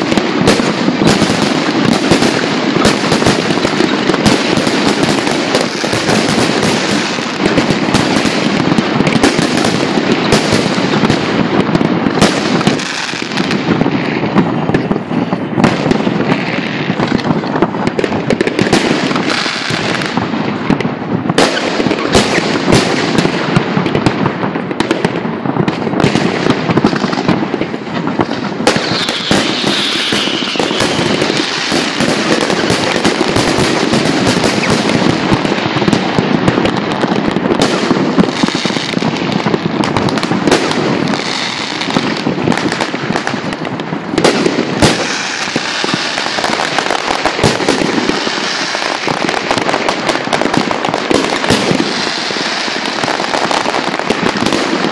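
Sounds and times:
fireworks bursts and crackling: 0.0 - 54.9.

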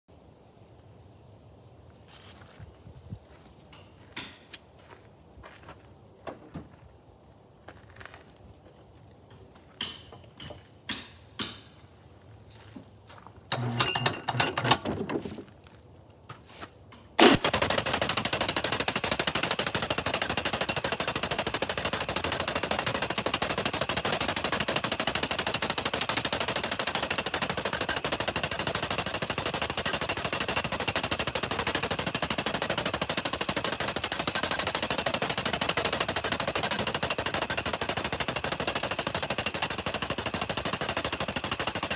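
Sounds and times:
jackhammer pounding log: 13.5 - 14.9, 17.2 - 41.9.

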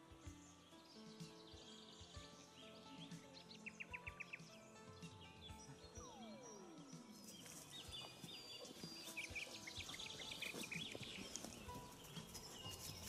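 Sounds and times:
small birds chirping: 0.0 - 13.0
tone sliding down in pitch: 5.9 - 7.7.

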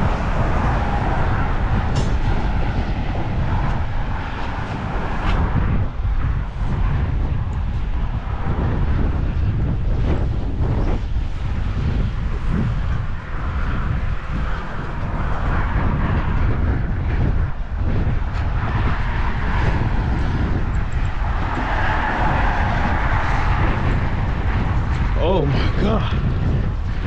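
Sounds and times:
road traffic rumble: 0.0 - 27.0
wind buffeting microphone: 0.0 - 27.0
vehicle passing: 18.4 - 25.4.

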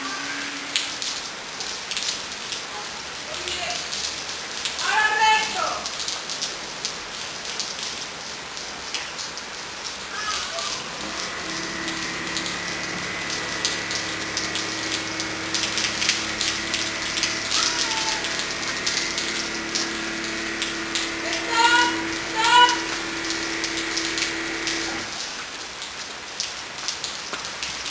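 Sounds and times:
rain pattering on pavement: 0.6 - 27.9
truck engine low drone: 10.9 - 25.2.

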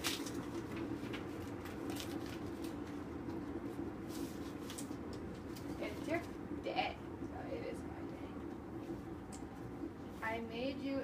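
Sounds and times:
paper envelope and card rustling: 0.0 - 3.0
steady low hum: 0.0 - 11.0.

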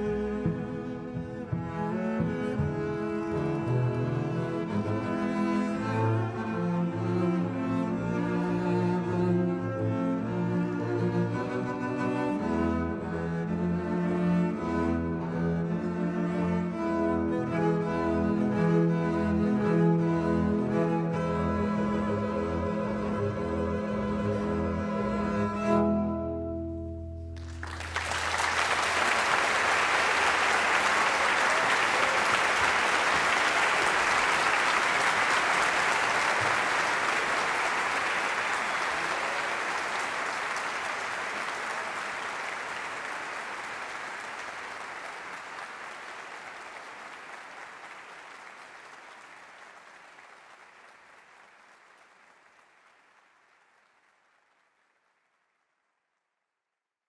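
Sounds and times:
audience applause: 27.4 - 55.9.

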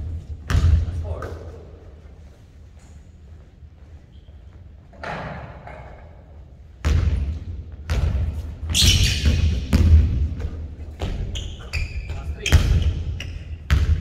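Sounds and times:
basketball bouncing on hardwood floor: 0.4 - 0.8, 6.8 - 11.4, 12.0 - 13.1, 13.7 - 14.0.

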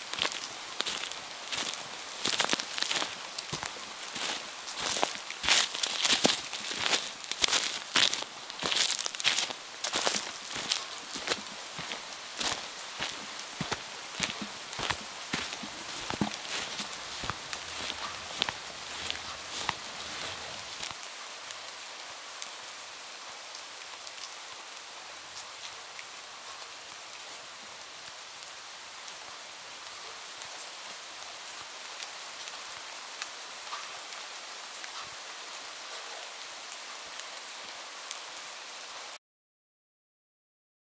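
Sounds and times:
raindrops ticking close by: 0.0 - 21.2
steady rain falling: 0.0 - 39.2.

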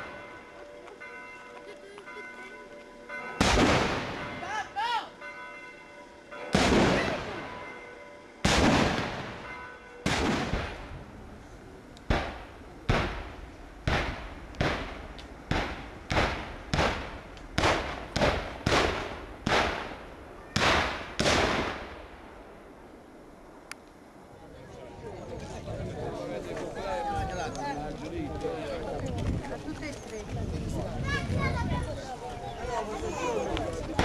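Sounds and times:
gunshots with echoes: 3.4 - 4.5, 6.5 - 7.6, 8.4 - 10.9, 12.1 - 20.0.

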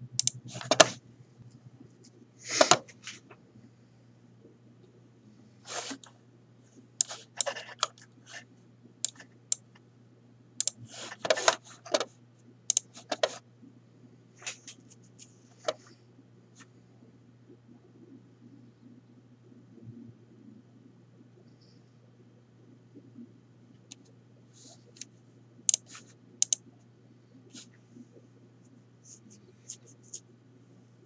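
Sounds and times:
steady low hum: 0.0 - 31.0
mouse and keyboard clicks: 0.2 - 1.0, 7.0 - 8.1, 9.0 - 9.6, 12.7 - 13.4, 25.7 - 26.6.

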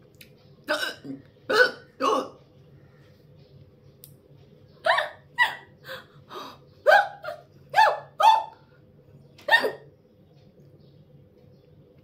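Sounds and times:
woman hiccupping: 0.7 - 2.4.

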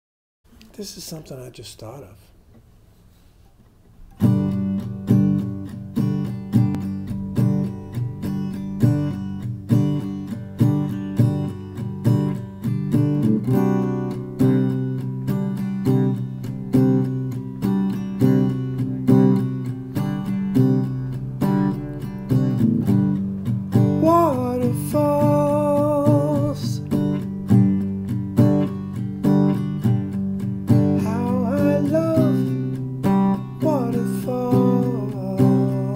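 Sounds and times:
acoustic guitar strummed: 4.0 - 35.9
man singing: 23.9 - 26.9, 30.9 - 32.8, 33.6 - 35.9.

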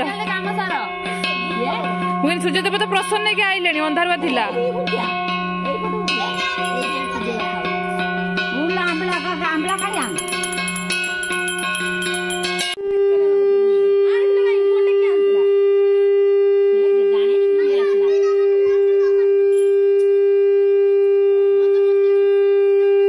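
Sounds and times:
conch shell blown: 9.7 - 23.0.

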